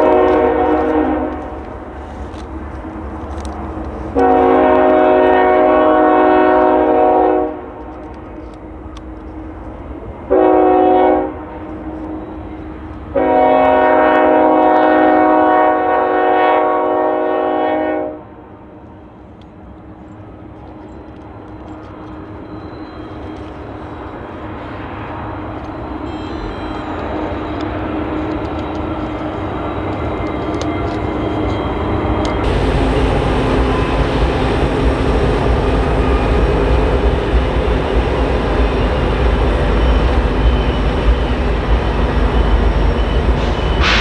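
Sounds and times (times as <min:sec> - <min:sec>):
locomotive air horn blasts: 0:00.0 - 0:01.6, 0:04.1 - 0:07.8, 0:10.3 - 0:11.5, 0:13.1 - 0:18.3, 0:32.4 - 0:36.6
locomotive engine rumble: 0:26.4 - 0:44.0.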